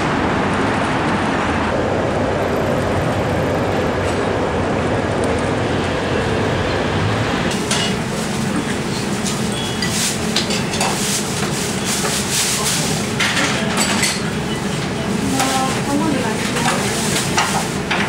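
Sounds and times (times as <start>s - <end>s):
city street noise: 0.0s - 18.0s
busy restaurant din: 6.7s - 18.0s.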